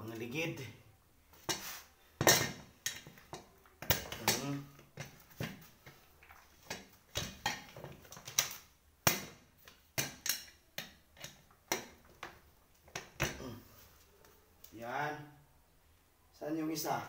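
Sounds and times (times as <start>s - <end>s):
chair casters clicking and knocking: 2.2s - 13.4s.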